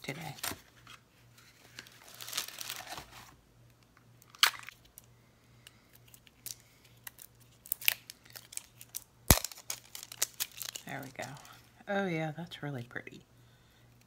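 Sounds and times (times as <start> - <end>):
plastic wrapping crinkling: 0.2 - 3.4, 6.0 - 11.7.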